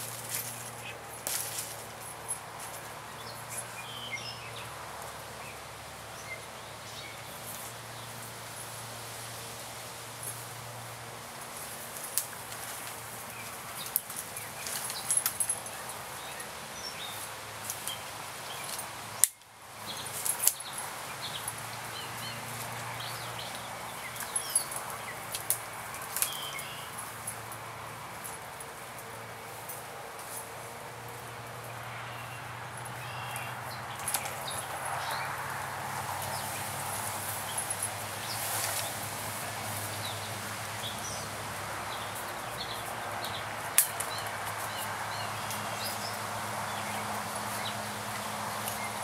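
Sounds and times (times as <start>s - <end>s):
steady woodland hiss: 0.0s - 49.0s
small birds chirping: 31.7s - 35.3s.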